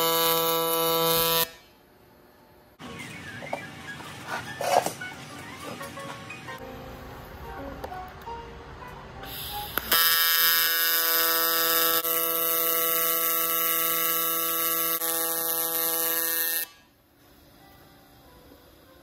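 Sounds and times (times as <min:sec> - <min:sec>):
welding arc buzzing: 0:00.0 - 0:01.8, 0:09.3 - 0:17.0.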